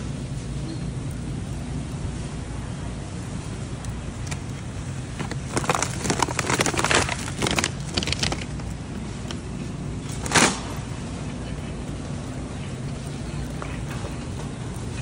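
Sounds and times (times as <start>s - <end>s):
refrigerated cases humming: 0.0s - 15.0s
shopping cart rattling: 5.1s - 8.6s.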